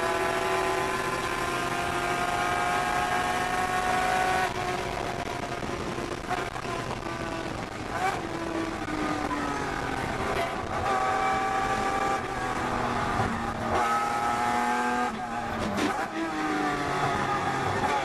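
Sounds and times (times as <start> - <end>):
race car engine from cabin: 0.0 - 18.0.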